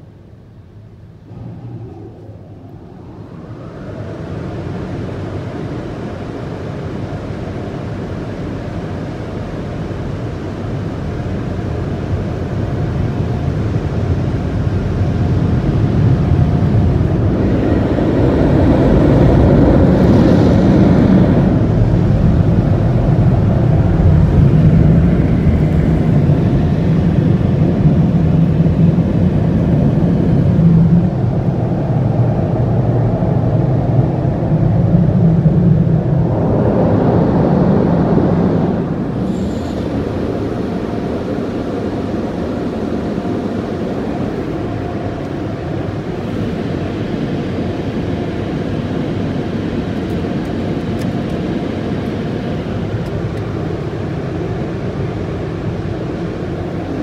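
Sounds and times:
car wash dryer blowers roaring: 0.9 - 57.0.

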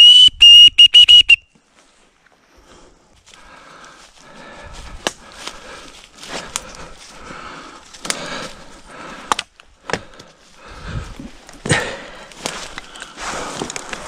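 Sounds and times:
footsteps crunching dry leaves: 3.2 - 8.6
twigs snapping: 4.9 - 6.9, 7.8 - 10.4, 11.4 - 14.0
branches scraping clothing: 12.2 - 14.0.

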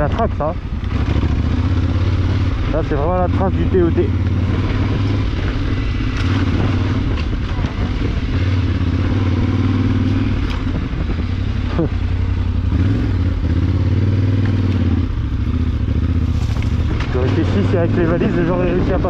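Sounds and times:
motorcycle engine running: 0.0 - 19.0
motorcycle knocking over bumps: 14.3 - 17.5.

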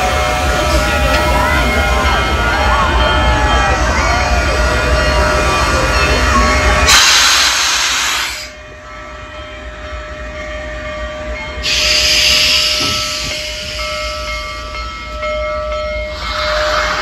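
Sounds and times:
steam locomotive rolling: 0.0 - 17.0
loud hissing steam bursts: 6.9 - 8.6, 11.6 - 14.3, 16.1 - 17.0.

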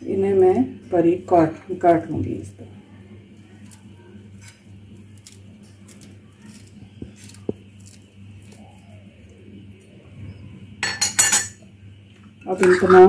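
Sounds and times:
low steady hum: 0.0 - 13.0
scissors snipping leaves: 3.6 - 9.0.

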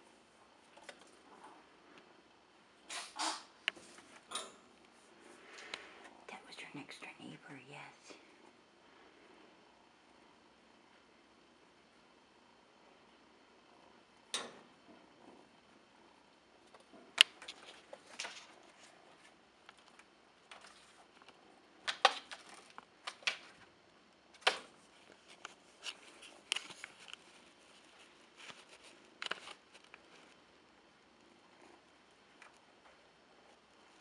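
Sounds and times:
kitten paws rustling and scratching: 24.8 - 30.4.

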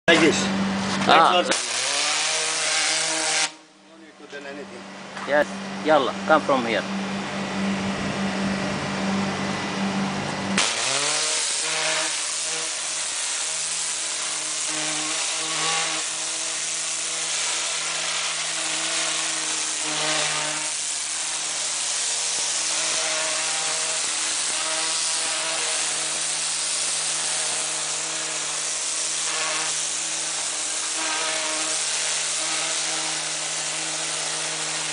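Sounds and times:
pressure washer pump hum: 0.1 - 3.8, 4.4 - 34.9
steady hum: 0.1 - 34.9
water jet hissing on boat hull: 10.6 - 34.9.

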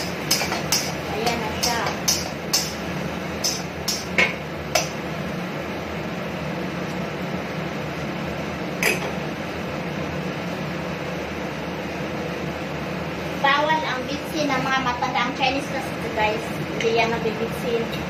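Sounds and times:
metal spatula clacking on wok: 0.2 - 2.8.

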